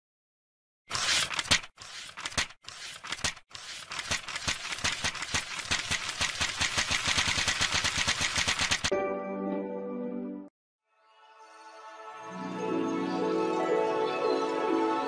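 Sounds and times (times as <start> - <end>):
rapid rattle of sharp clicks: 3.0 - 8.9.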